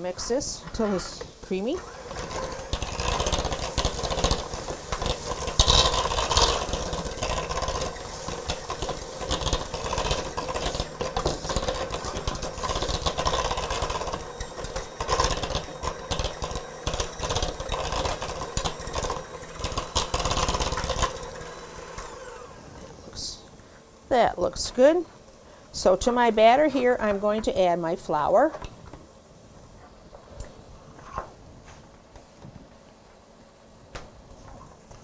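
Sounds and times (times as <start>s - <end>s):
electric mixer running: 0.7s - 23.4s.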